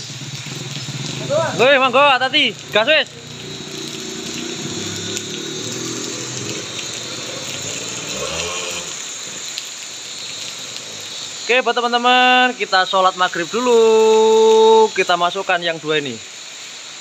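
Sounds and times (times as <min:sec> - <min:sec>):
motorcycle engine pulling away: 0:00.0 - 0:11.5
rain hissing on wet road: 0:00.0 - 0:17.0.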